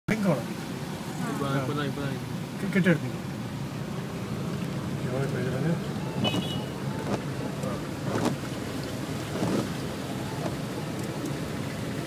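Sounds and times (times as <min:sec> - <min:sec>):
rain and tyre water noise: 0:00.1 - 0:12.0
short knocks and splashes: 0:08.0 - 0:10.6.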